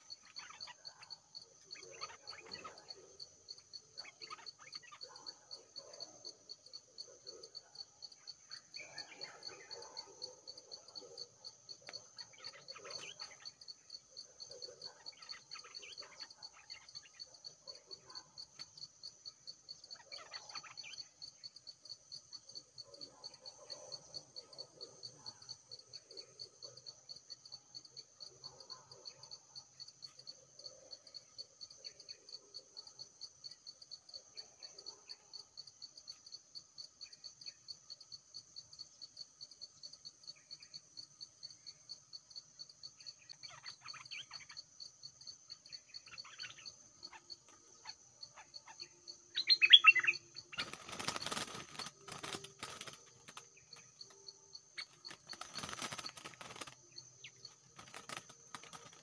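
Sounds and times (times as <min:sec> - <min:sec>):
insect chorus trilling: 0:00.0 - 0:59.0
faint irregular sounds: 0:46.0 - 0:59.0.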